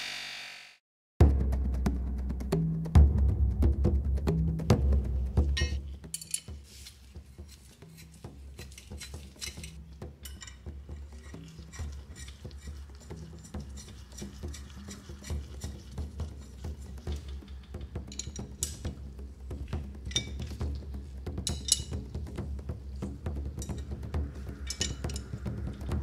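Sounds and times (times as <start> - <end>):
metal clicks of shears: 5.6 - 6.6, 7.4 - 15.8.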